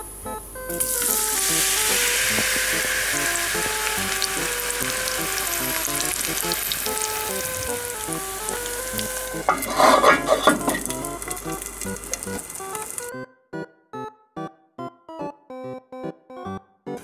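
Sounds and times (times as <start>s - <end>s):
batter sizzling in hot oil: 0.7s - 13.1s.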